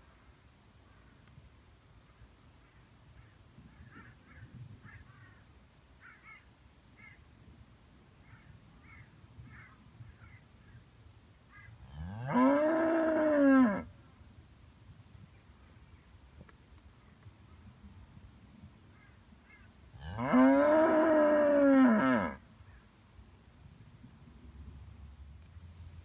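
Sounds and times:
cow mooing: 11.9 - 13.9, 20.0 - 22.4.

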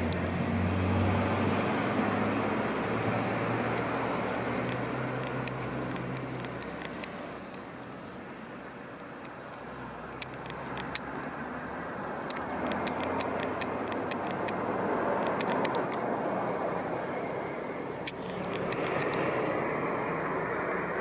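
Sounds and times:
sharp clicks: 0.0 - 0.4, 3.6 - 8.0, 10.1 - 11.4, 12.2 - 16.2, 18.0 - 19.6
vehicle passing: 0.0 - 7.4, 9.8 - 21.0.

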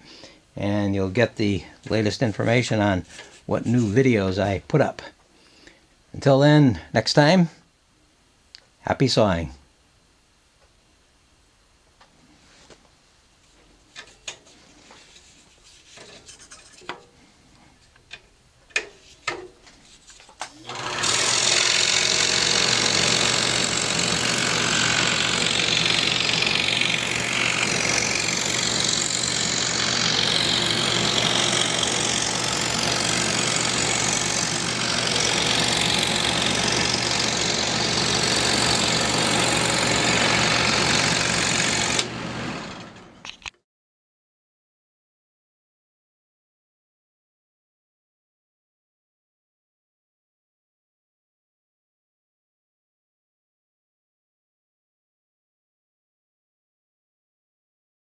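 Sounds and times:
scroll saw cutting plywood: 20.5 - 43.3.

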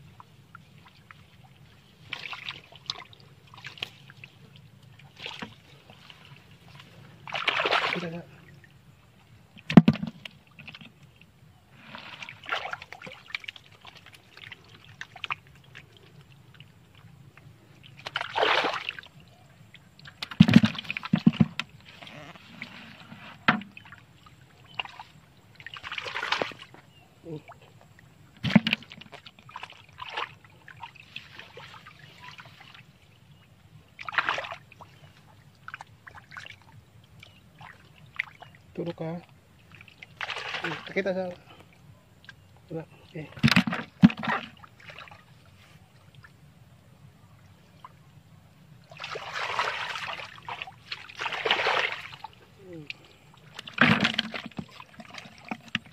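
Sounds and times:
hands splashing in muddy water: 2.0 - 4.2, 5.1 - 8.2, 11.8 - 15.8, 17.9 - 19.1, 24.7 - 26.7, 28.4 - 32.8, 34.0 - 36.6, 39.7 - 41.0, 48.9 - 55.9.

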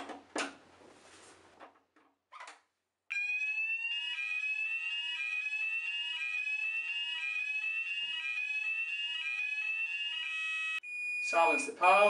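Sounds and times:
fire alarm sweeping tone: 3.1 - 12.0.

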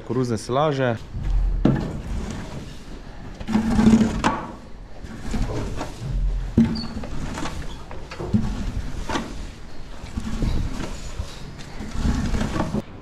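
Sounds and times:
knocks and scrapes in a barn: 0.9 - 13.0.

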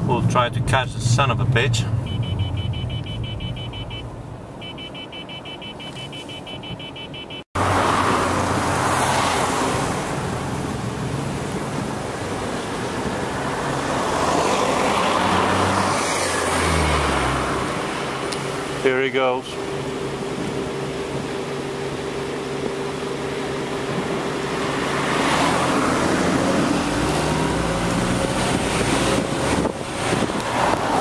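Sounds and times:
car engine revving: 0.0 - 5.4, 7.6 - 21.3, 22.0 - 31.0
car engine idling: 0.0 - 7.3
wind and road noise: 0.0 - 31.0
rapid electronic beeping: 2.0 - 7.4.

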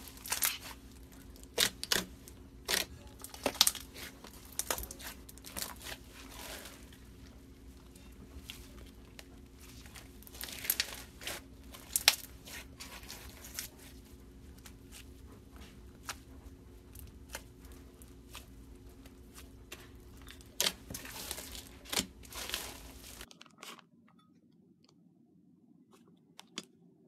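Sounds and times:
slime crackling and popping: 0.0 - 7.0, 9.2 - 13.8, 19.3 - 23.7.

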